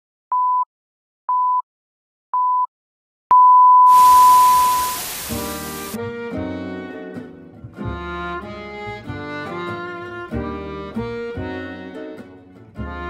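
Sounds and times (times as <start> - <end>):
long held beep: 3.3 - 5.6
short high beeps: 3.3 - 5.9
hiss: 3.9 - 6.0
music: 5.3 - 13.0.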